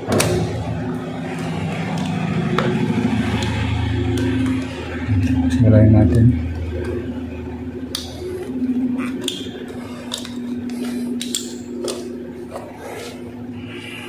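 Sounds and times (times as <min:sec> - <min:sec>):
steady low hum: 0:00.0 - 0:14.0
pliers clicking and snipping wire: 0:09.2 - 0:12.1.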